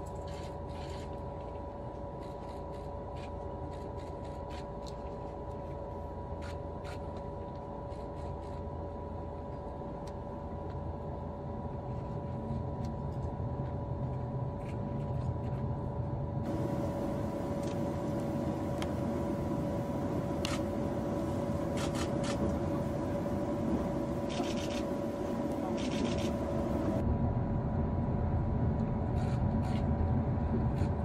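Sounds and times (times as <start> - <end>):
train low rumble: 7.4 - 31.0.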